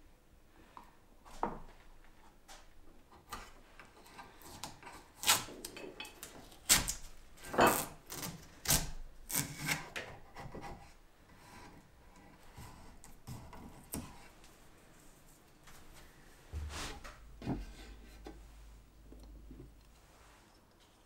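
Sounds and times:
quiet rubbing: 14.1 - 21.0.

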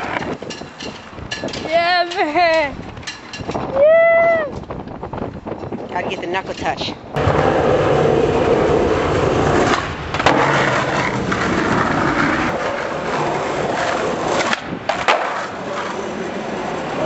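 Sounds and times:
skateboard clack: 0.0 - 3.6, 7.2 - 17.0
skateboard wheels rolling on concrete: 0.0 - 17.0.

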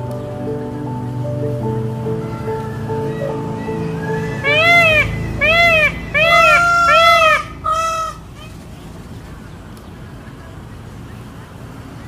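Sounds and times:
peacock calling: 1.6 - 9.6.

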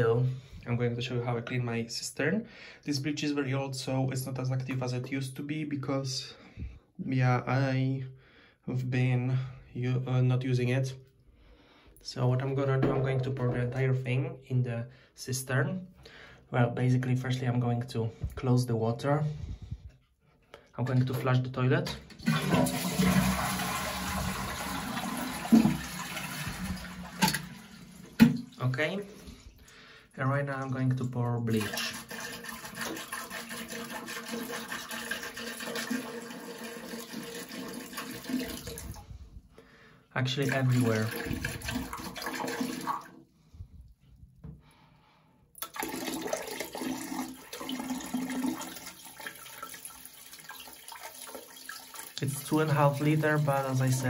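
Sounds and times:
toilet cistern flushing: 20.9 - 29.4, 30.9 - 39.0, 40.4 - 43.2, 45.6 - 54.0
liquid pouring into tank: 21.9 - 29.5, 30.9 - 39.2, 40.4 - 43.2, 45.6 - 54.0.

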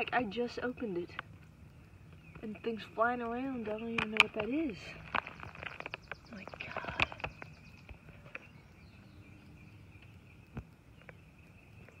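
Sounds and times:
plastic bag rustling: 4.4 - 7.2.

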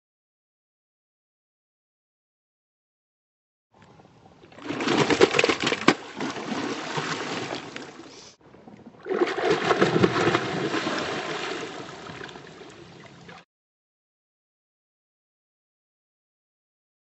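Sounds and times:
fish splashing in water: 4.6 - 8.3, 9.0 - 13.4.

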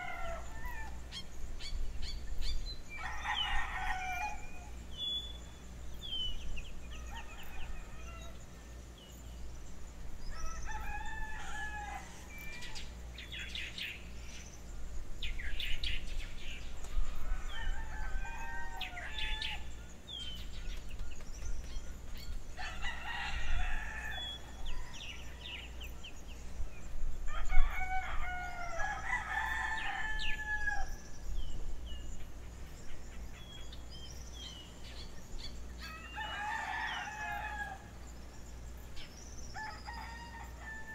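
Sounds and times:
rooster crowing: 0.0 - 1.1, 2.9 - 4.7, 6.9 - 8.4, 10.3 - 12.8, 17.1 - 19.8, 22.6 - 25.7, 27.3 - 31.0, 35.8 - 37.9, 39.6 - 40.9
small birds chirping: 0.0 - 27.8, 28.8 - 40.9.

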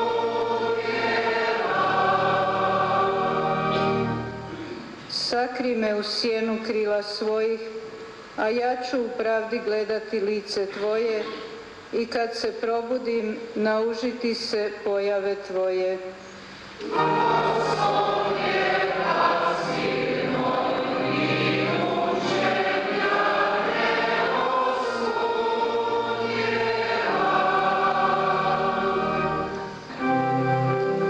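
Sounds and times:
church choir singing: 0.0 - 4.6, 16.8 - 31.0.

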